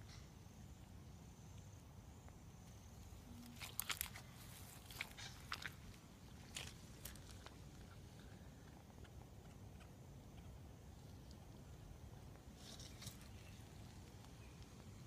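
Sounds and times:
low background noise: 0.0 - 15.0
footsteps on grass and leaves: 3.5 - 7.8.

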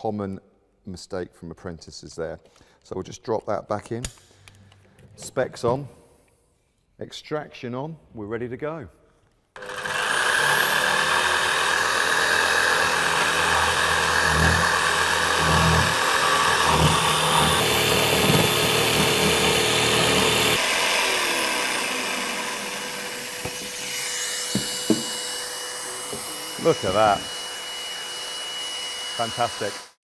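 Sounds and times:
dust extractor hum: 9.6 - 29.8
jigsaw cutting through board: 9.6 - 30.0.

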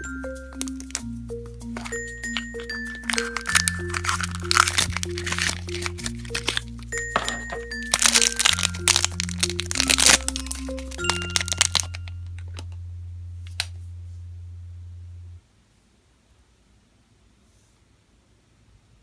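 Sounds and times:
electronic music: 0.0 - 13.8
plastic packet crinkling: 0.6 - 1.1, 1.7 - 12.7.

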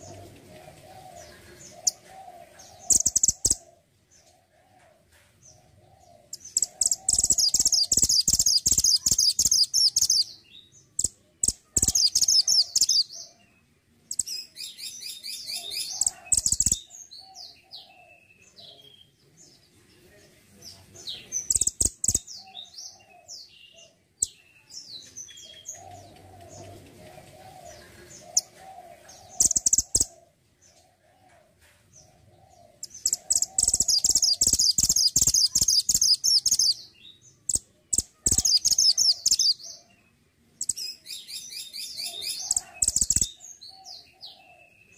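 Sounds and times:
songbird twittering: 0.0 - 3.7, 6.2 - 19.1, 21.1 - 30.2, 32.8 - 44.9
sharp clicks: 21.5 - 22.2.

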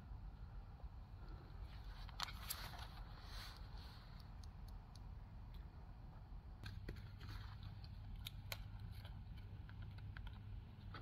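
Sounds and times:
faint low hum: 0.0 - 11.0
hands handling plastic lantern: 1.7 - 4.5.

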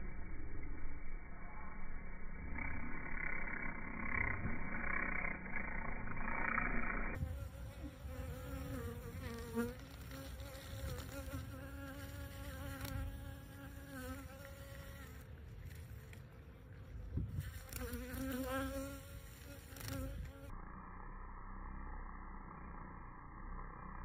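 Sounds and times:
honeybee buzzing in flight: 2.6 - 15.3, 17.3 - 20.6.

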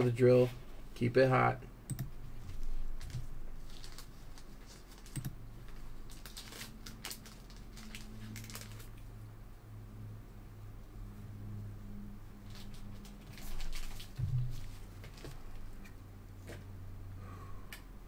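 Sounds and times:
low steady hum: 0.0 - 18.0
keyboard and mouse clicks: 1.9 - 2.2, 5.1 - 5.4.

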